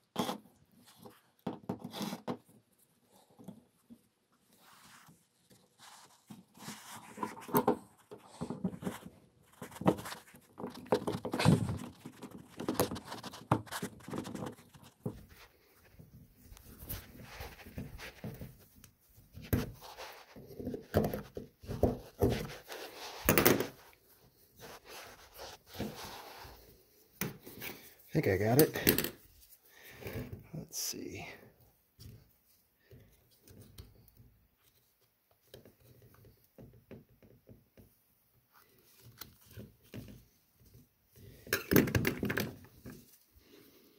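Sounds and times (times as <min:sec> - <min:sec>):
gloves rubbing: 0:00.4 - 0:11.0, 0:11.8 - 0:30.6.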